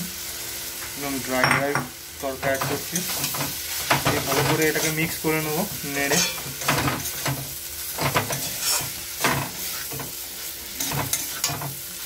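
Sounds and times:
light frying sizzle: 0:00.0 - 0:12.0
metal spatula scraping a pan: 0:08.0 - 0:10.1, 0:10.8 - 0:11.8.

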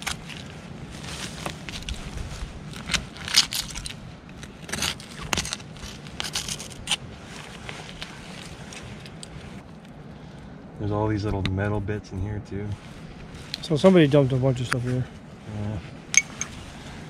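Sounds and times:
digging through glass and metal: 0:16.2 - 0:16.6.

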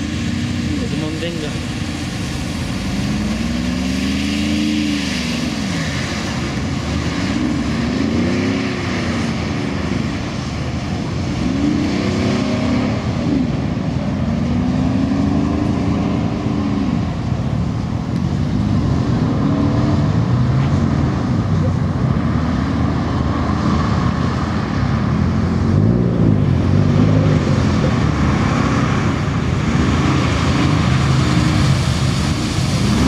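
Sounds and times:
tyres hissing through water: 0:00.0 - 0:21.2, 0:26.7 - 0:33.0
engine revving: 0:00.0 - 0:33.0.

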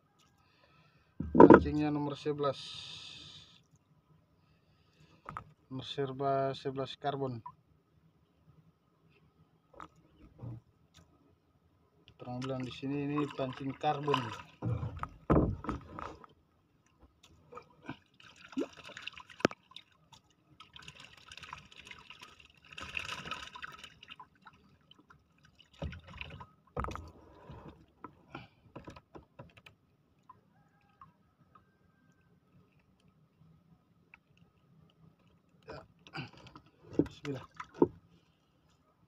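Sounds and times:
paddle knocking against hull: 0:01.2 - 0:01.8, 0:14.6 - 0:16.2
water splashing around canoe: 0:12.4 - 0:16.3, 0:17.1 - 0:28.0.

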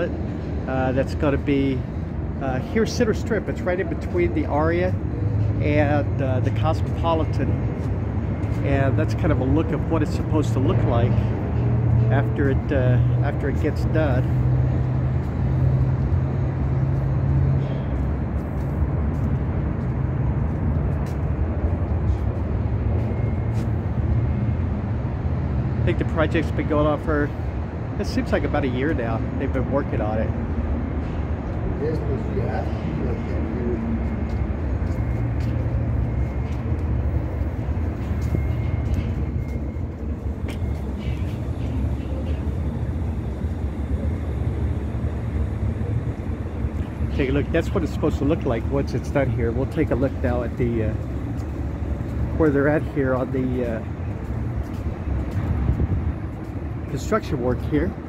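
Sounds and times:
traffic rumble: 0:00.0 - 0:58.0.

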